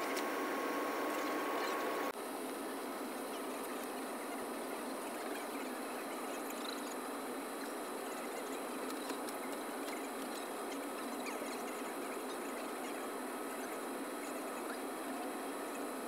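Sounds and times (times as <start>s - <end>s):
hissing cabin noise: 0.0s - 2.2s.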